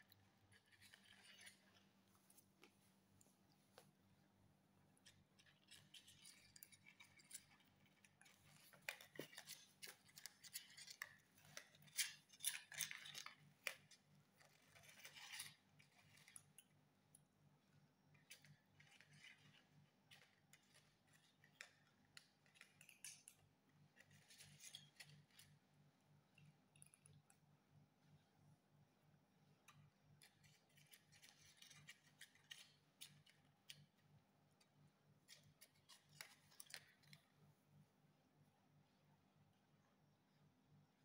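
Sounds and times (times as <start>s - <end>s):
cats chewing and crunching: 0.0s - 16.8s, 18.2s - 25.6s, 30.2s - 34.0s.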